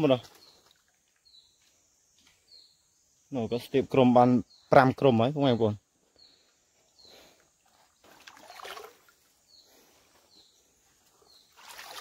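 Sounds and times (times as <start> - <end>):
stream water sloshing: 7.6 - 9.4, 11.2 - 12.0.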